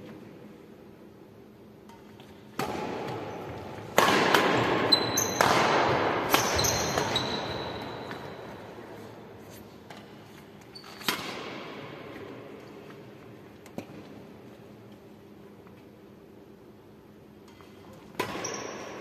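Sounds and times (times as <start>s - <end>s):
racket striking shuttlecock: 1.8s - 8.5s, 11.0s - 11.8s, 17.5s - 18.9s
short high squeaks: 6.4s - 8.2s, 10.7s - 11.1s.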